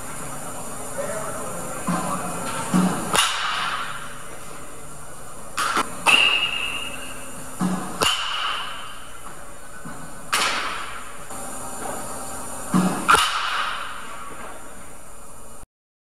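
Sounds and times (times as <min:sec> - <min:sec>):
baseball bat hitting balls: 0:01.8 - 0:04.2, 0:05.5 - 0:14.7.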